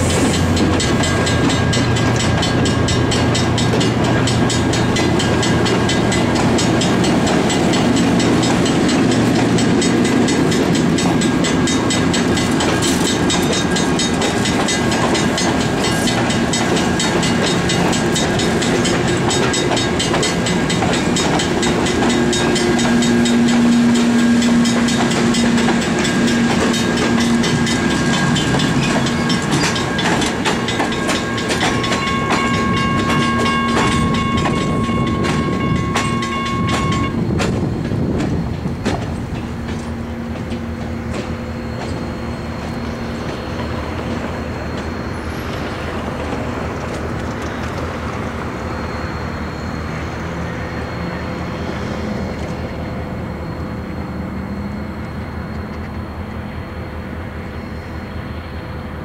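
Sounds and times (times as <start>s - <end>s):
train wheels clicking over rail joints: 0.0s - 49.2s
high steady squeal: 39.5s - 59.0s.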